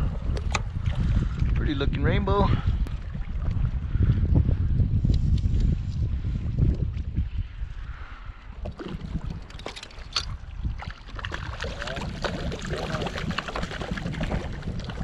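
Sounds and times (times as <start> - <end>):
wind rumble on microphone: 0.0 - 15.0
fish splashing in water: 8.7 - 15.0.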